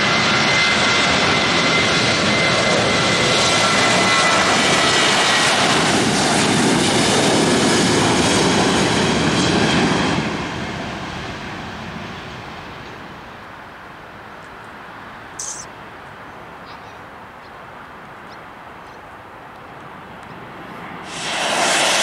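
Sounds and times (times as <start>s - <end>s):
jet engines at takeoff thrust: 0.0s - 13.6s, 19.5s - 22.0s.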